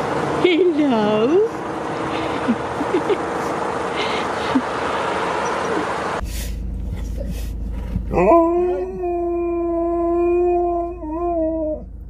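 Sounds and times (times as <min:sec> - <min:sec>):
dog howling: 0:08.1 - 0:11.9.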